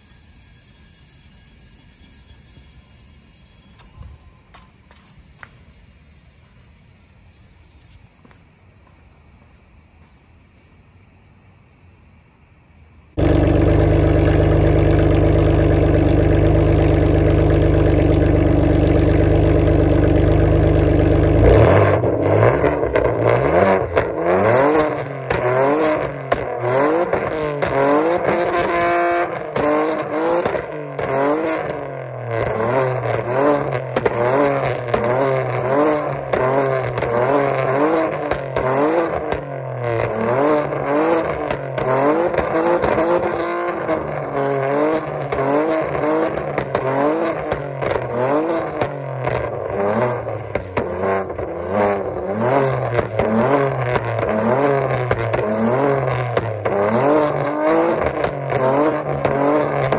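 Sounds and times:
car engine revving loudly: 13.2 - 59.9
exhaust pops and crackles: 13.2 - 59.9.

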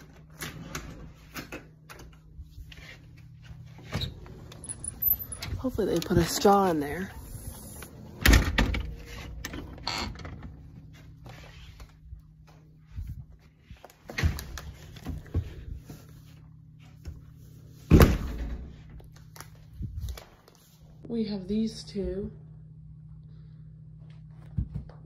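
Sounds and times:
door opening and shutting: 3.8 - 6.1, 7.3 - 10.6.

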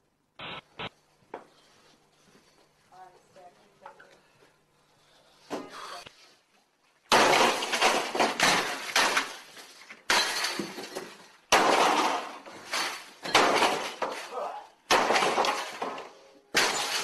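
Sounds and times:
glass crashing and shattering: 7.1 - 17.0.

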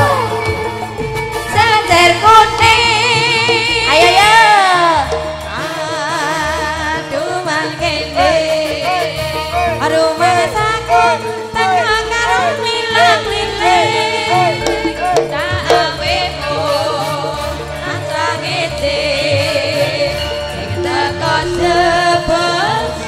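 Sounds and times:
gamelan ensemble playing: 0.0 - 23.0.

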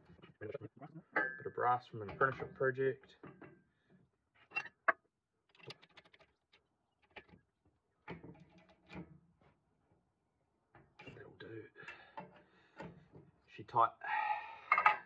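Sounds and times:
metal clinks and knocks: 14.7 - 15.0.

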